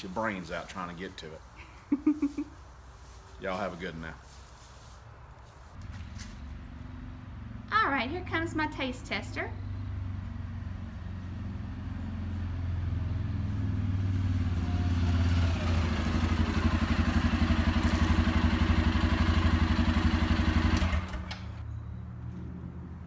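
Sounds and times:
atv engine: 0:05.8 - 0:23.0.

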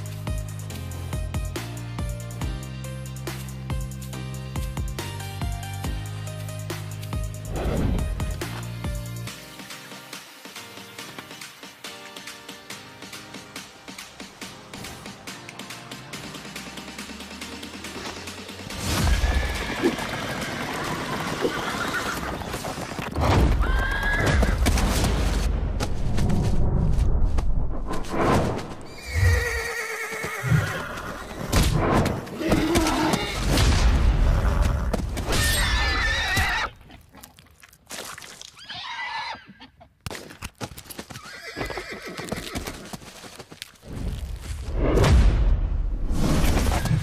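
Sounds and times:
horses whinnying and squealing: 0:19.0 - 0:24.7, 0:28.9 - 0:31.6, 0:32.3 - 0:33.5, 0:34.3 - 0:37.4, 0:38.4 - 0:40.0, 0:40.9 - 0:43.4
galloping hooves: 0:19.2 - 0:26.6, 0:29.1 - 0:33.4, 0:39.4 - 0:44.2.

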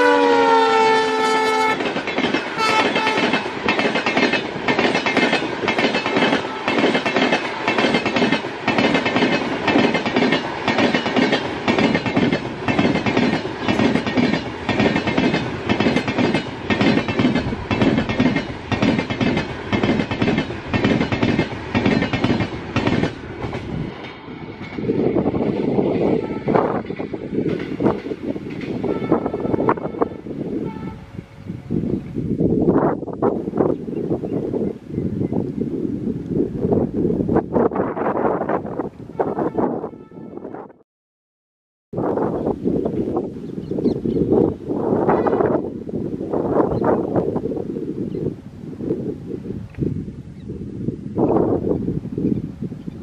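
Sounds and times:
train horn: 0:00.0 - 0:01.9, 0:02.6 - 0:03.5, 0:06.4 - 0:06.8, 0:26.0 - 0:26.9, 0:28.7 - 0:31.8, 0:39.1 - 0:40.7, 0:44.8 - 0:45.7
train wheels clacking over rails: 0:01.4 - 0:30.9.

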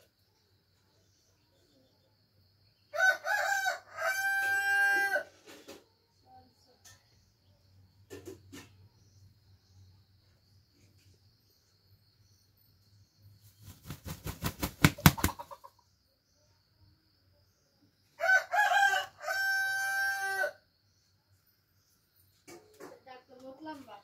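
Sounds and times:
rooster crowing: 0:02.9 - 0:05.4, 0:18.2 - 0:20.6
rooster wings flapping: 0:13.5 - 0:15.6.

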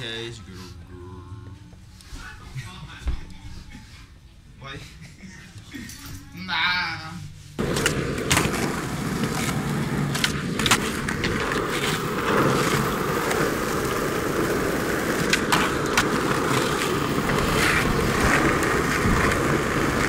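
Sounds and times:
skateboard wheels rolling on asphalt: 0:07.6 - 0:20.0
skateboard wooden clacks: 0:07.6 - 0:20.0.

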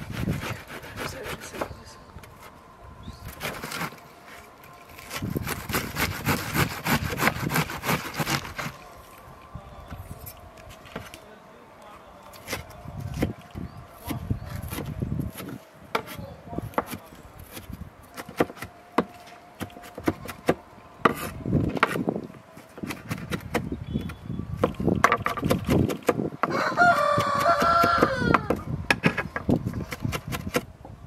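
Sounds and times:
knife chopping on wooden board: 0:14.1 - 0:22.0
chicken calling: 0:26.5 - 0:28.6.

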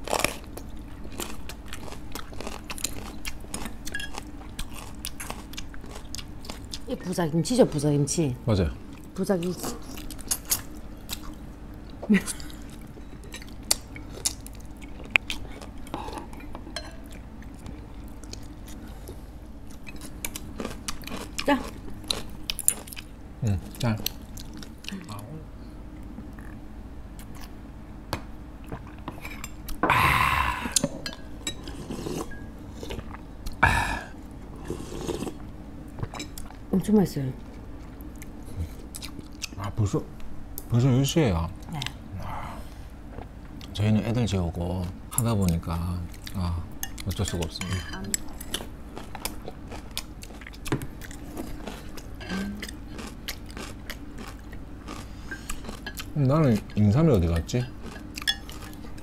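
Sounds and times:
person chewing food: 0:00.0 - 0:06.9, 0:08.9 - 0:25.0, 0:28.6 - 0:36.6, 0:37.5 - 0:39.6, 0:48.1 - 0:56.8, 0:57.6 - 0:59.0
spoons clinking against bowls: 0:16.7 - 0:17.1
slurping soup: 0:34.6 - 0:35.4.

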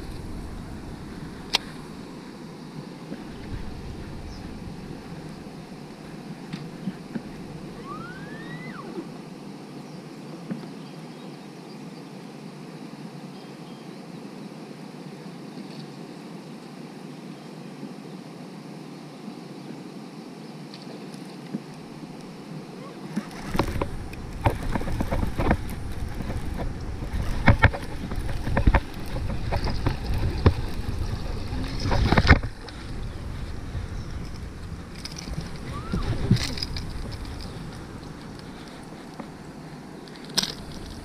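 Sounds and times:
wind on microphone: 0:00.0 - 0:09.2, 0:21.5 - 0:41.0
rising and falling whistle: 0:07.8 - 0:09.1, 0:35.7 - 0:36.2.

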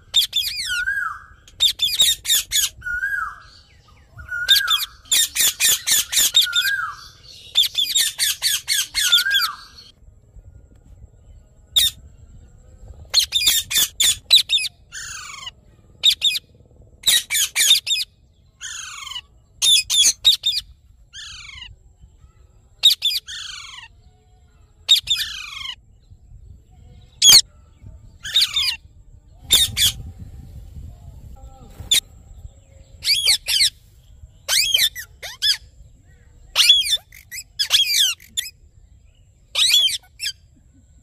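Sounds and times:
parrots squawking: 0:04.3 - 0:09.8, 0:17.0 - 0:18.0, 0:34.5 - 0:35.6, 0:36.5 - 0:38.5, 0:39.6 - 0:40.3.

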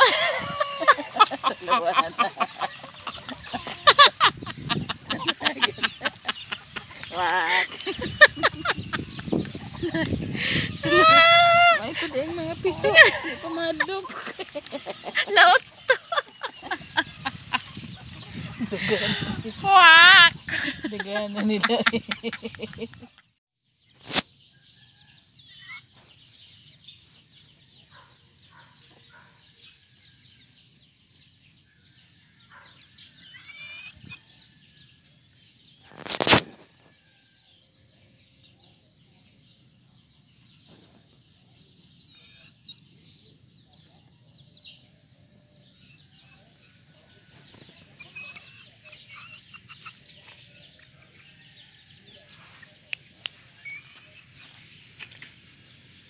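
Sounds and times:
chickens clucking: 0:00.0 - 0:19.7, 0:46.3 - 0:51.3.

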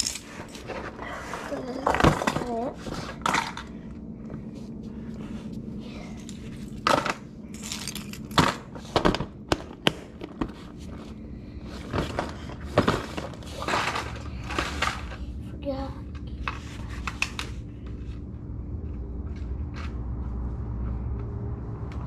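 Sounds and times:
plastic boxes clicking and rattling: 0:00.0 - 0:03.7, 0:11.8 - 0:15.2
steady low hum: 0:00.0 - 0:22.0.

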